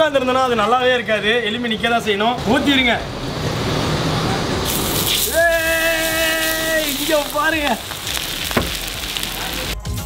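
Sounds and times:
hissing sizzle on hot plate: 0:04.7 - 0:09.8
man exclaiming: 0:05.3 - 0:07.6.

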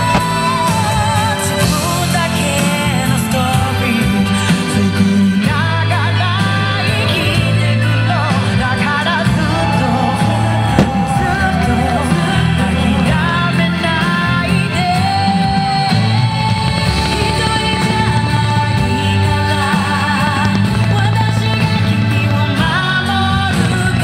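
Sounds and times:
firework shell bursting: 0:00.0 - 0:01.3, 0:10.7 - 0:11.8
pop rock song with singer: 0:00.0 - 0:24.0.

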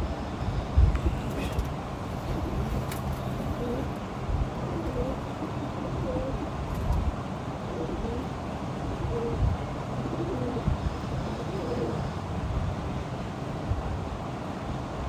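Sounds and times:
pigeons cooing: 0:01.0 - 0:04.0, 0:04.6 - 0:06.6, 0:07.6 - 0:08.3, 0:09.0 - 0:09.4, 0:10.0 - 0:12.1.

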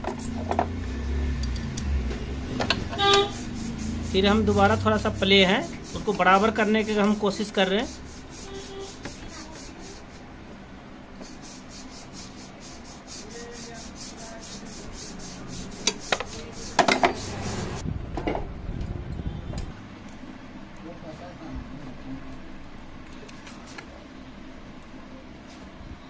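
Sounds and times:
tools scraping on engine parts: 0:00.0 - 0:10.3, 0:11.3 - 0:17.8.

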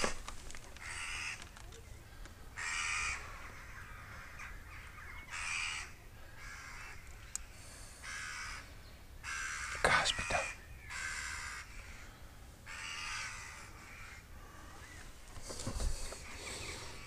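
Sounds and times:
crow cawing: 0:00.8 - 0:01.4, 0:02.6 - 0:07.1, 0:08.0 - 0:15.0.

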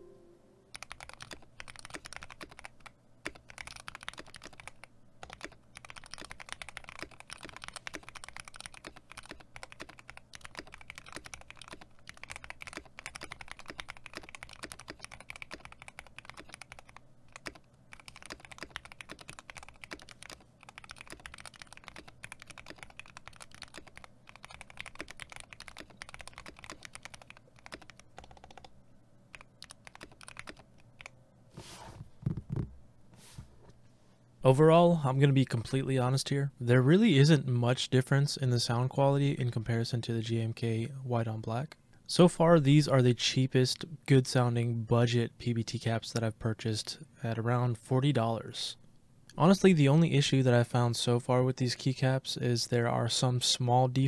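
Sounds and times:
fast typing on mechanical keyboard: 0:00.7 - 0:28.7, 0:29.3 - 0:31.1.

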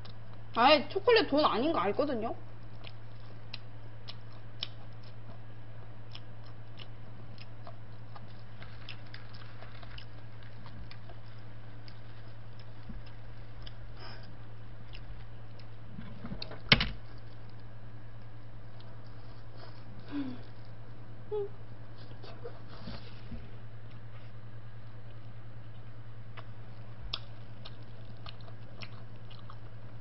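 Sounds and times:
low hum: 0:00.0 - 0:30.0
person chewing: 0:02.5 - 0:20.9, 0:25.0 - 0:30.0.

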